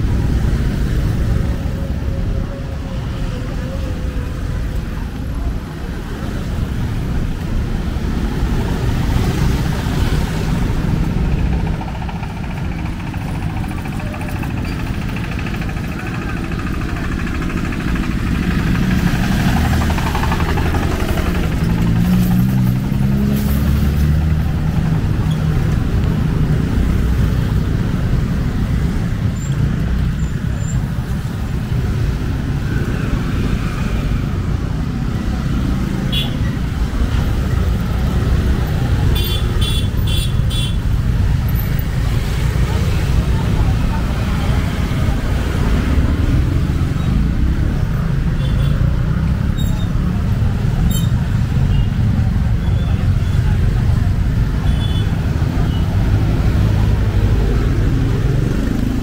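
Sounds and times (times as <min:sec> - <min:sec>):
motorcycles and scooters passing: 0:00.0 - 0:59.0
loud engine passing: 0:06.1 - 0:29.3, 0:49.0 - 0:59.0.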